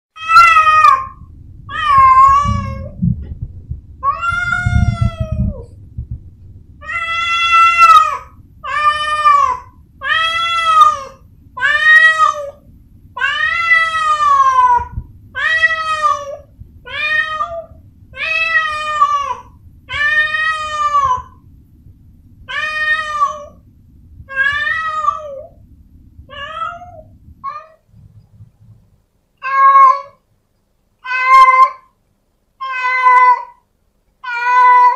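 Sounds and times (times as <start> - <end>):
cat meowing: 0.2 - 3.0, 4.0 - 5.7, 6.8 - 12.6, 13.2 - 21.4, 22.5 - 23.6, 24.3 - 25.5, 26.3 - 27.8, 29.4 - 30.2, 31.0 - 31.9, 32.6 - 33.6, 34.2 - 34.9
low rumble: 0.3 - 29.2.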